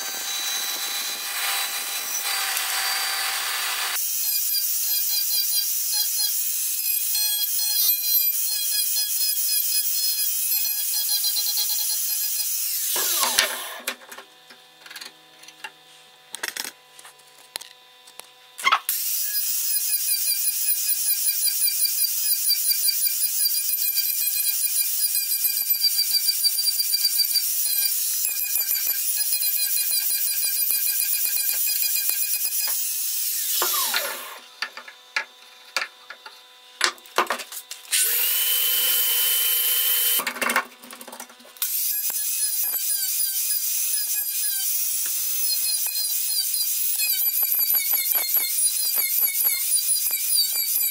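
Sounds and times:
angle grinder grinding wood: 0:00.0 - 0:04.1, 0:24.9 - 0:36.5, 0:41.6 - 0:50.9.

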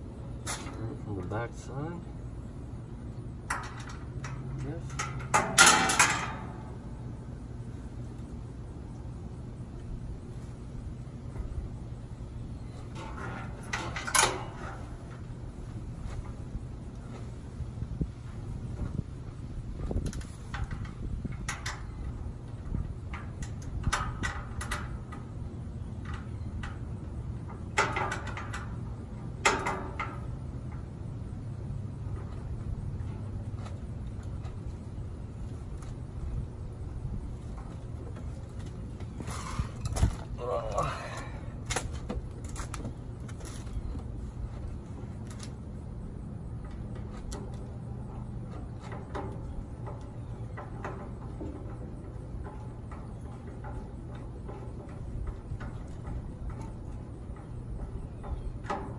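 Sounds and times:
steady low rumble: 0:00.0 - 0:58.9
metal clanks: 0:03.4 - 0:06.8, 0:12.6 - 0:15.3, 0:19.9 - 0:30.9, 0:46.5 - 0:58.9
metal grill parts clinking: 0:03.4 - 0:06.8, 0:12.9 - 0:15.2, 0:26.0 - 0:30.8.

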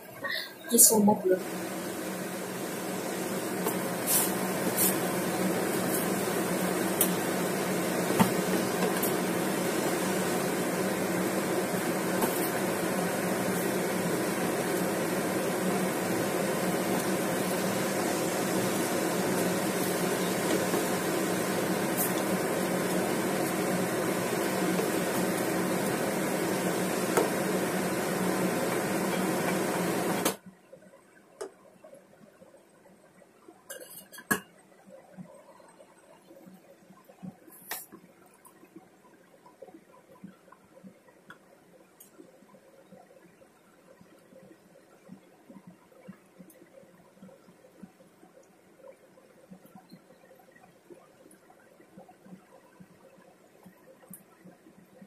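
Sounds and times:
gas stove whirring: 0:00.8 - 0:30.4.

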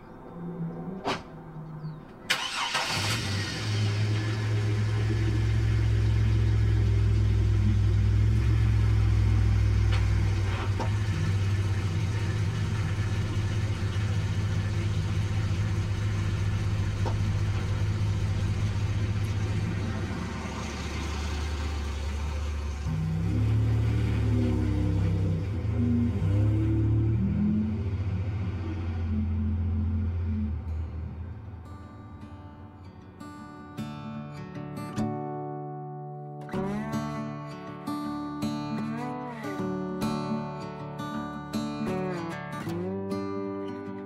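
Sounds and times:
van engine cranking: 0:01.8 - 0:32.7
van engine idling: 0:01.8 - 0:32.9.

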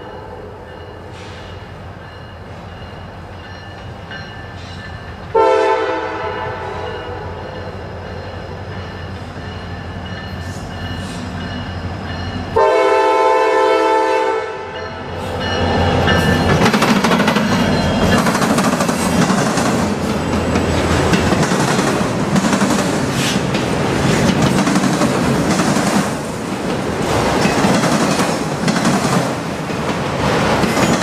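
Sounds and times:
locomotive air horn blasts: 0:05.3 - 0:07.4, 0:12.6 - 0:14.8
train wheels clattering on rail: 0:15.1 - 0:31.0.

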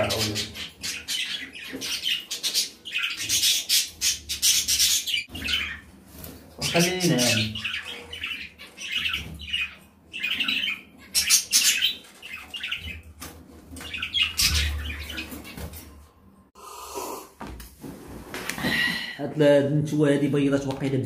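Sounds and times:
budgerigars chirping and squawking: 0:00.0 - 0:15.9.

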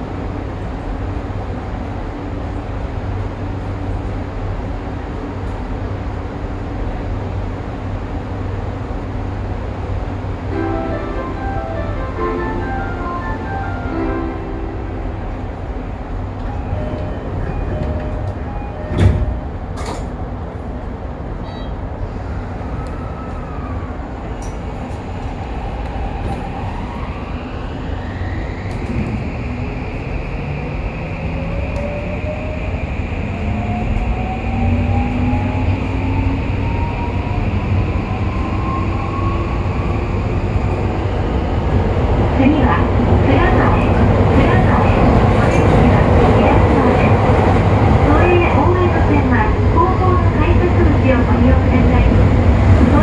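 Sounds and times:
low rumble of subway car: 0:00.0 - 0:53.0.

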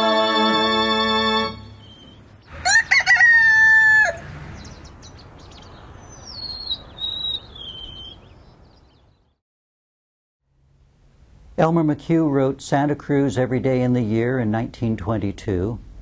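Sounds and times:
rooster crowing: 0:02.5 - 0:04.4.

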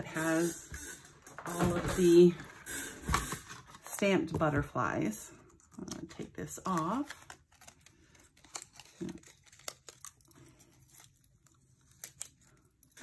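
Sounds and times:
crinkling paper: 0:05.4 - 0:13.0.

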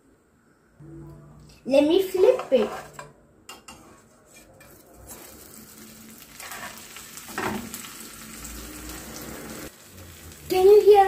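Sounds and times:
bread sizzling in a pan: 0:03.8 - 0:11.0.

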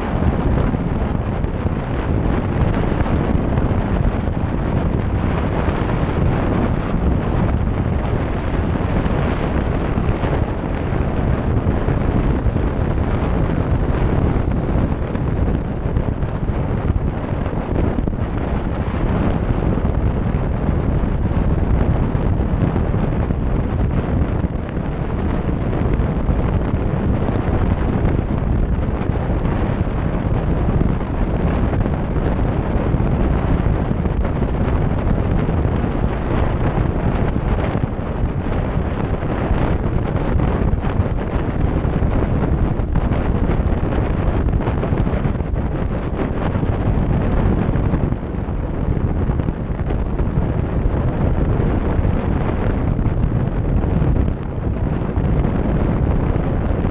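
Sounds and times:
road noise: 0:00.0 - 0:56.9
wind buffeting microphone: 0:00.0 - 0:56.9.

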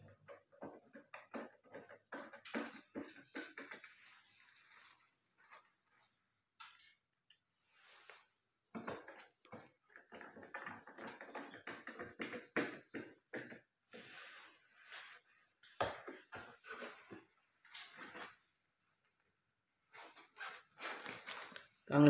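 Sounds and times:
wires and tools rustling: 0:00.0 - 0:22.0.

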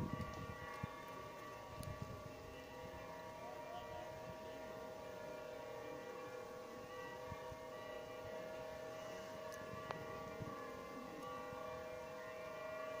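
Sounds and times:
church bells ringing: 0:00.0 - 0:13.0.

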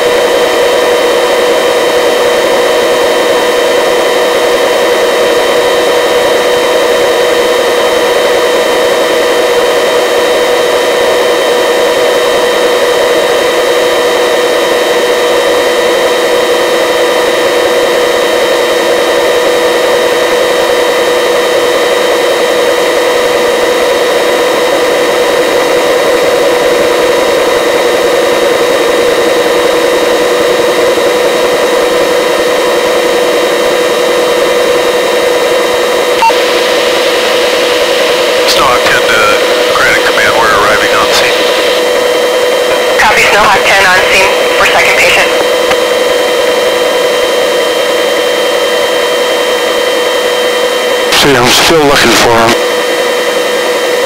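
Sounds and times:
helicopter engine and rotor drone: 0:00.0 - 0:54.0.

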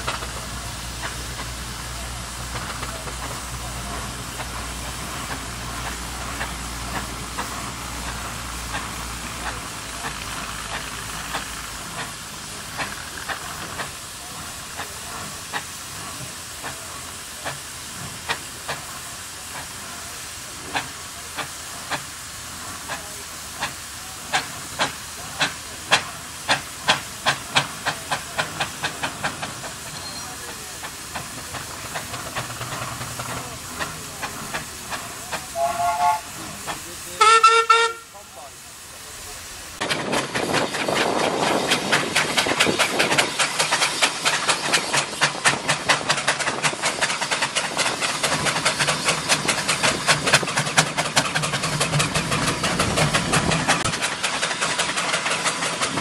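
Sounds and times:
steam engine chuffing: 0:00.0 - 0:56.0
steam hissing: 0:00.0 - 0:56.0
steam whistle: 0:35.6 - 0:36.4, 0:37.2 - 0:38.1.

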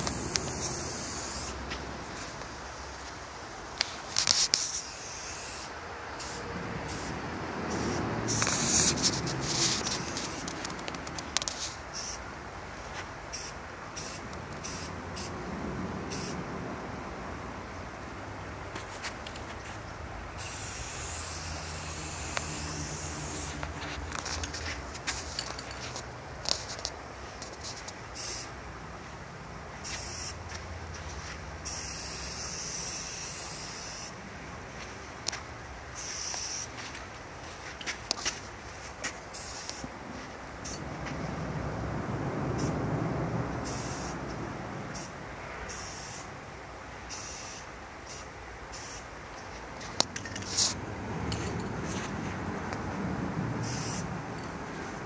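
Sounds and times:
spray can hissing: 0:00.0 - 0:01.6, 0:04.3 - 0:07.1, 0:07.7 - 0:10.5, 0:11.9 - 0:12.2, 0:13.3 - 0:15.3, 0:16.1 - 0:16.4, 0:20.4 - 0:23.7, 0:28.2 - 0:28.5, 0:29.8 - 0:30.4, 0:31.6 - 0:34.2, 0:36.0 - 0:36.7, 0:39.3 - 0:39.8, 0:43.6 - 0:44.2, 0:47.1 - 0:49.1, 0:53.6 - 0:54.1.

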